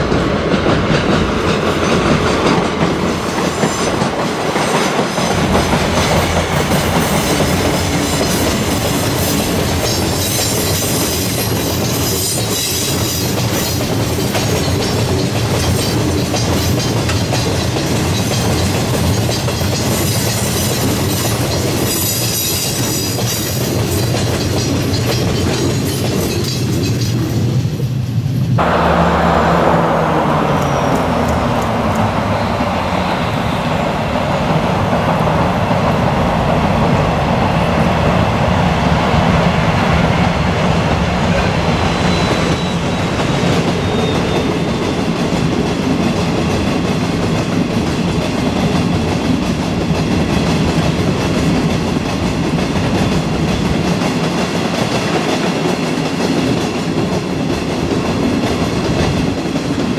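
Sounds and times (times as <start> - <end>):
freight train rumbling past: 0.0 - 59.9
high wheel squeal: 28.6 - 34.1, 41.5 - 45.1.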